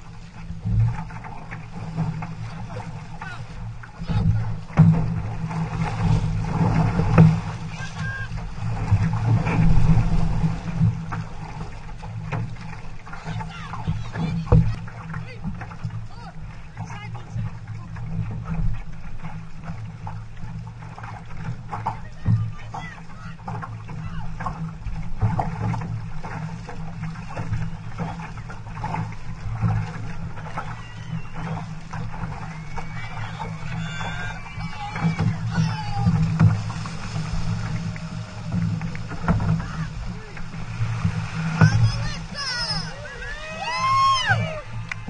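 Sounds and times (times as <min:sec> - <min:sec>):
paddle splashes: 0:00.0 - 0:45.0
water rushing along hull: 0:00.0 - 0:45.0.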